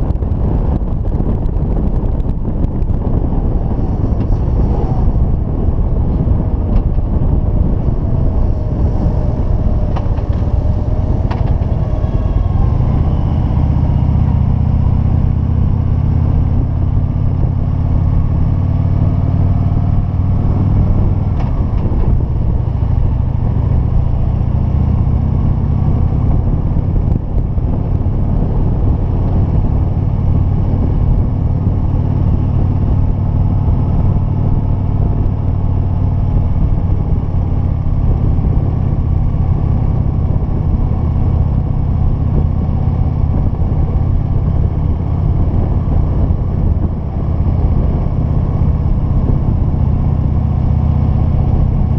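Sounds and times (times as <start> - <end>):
motorcycle engine running: 0.0 - 51.9
wind rushing over microphone: 0.0 - 51.9.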